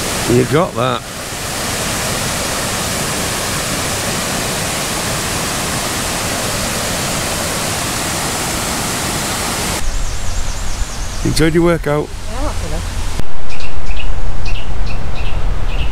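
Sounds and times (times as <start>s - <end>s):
waterfall rushing over rocks: 0.0s - 9.8s.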